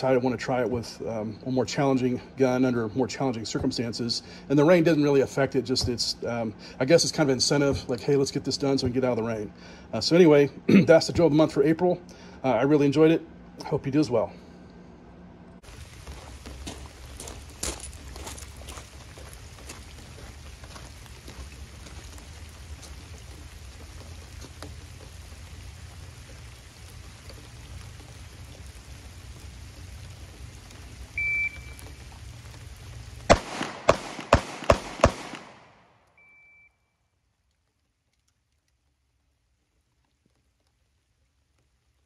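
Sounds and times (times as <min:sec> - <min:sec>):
steady rain falling: 0:00.0 - 0:13.0, 0:15.6 - 0:42.0
shot timer beep: 0:31.2 - 0:31.8, 0:36.2 - 0:36.8
pistol shots: 0:33.3 - 0:35.9.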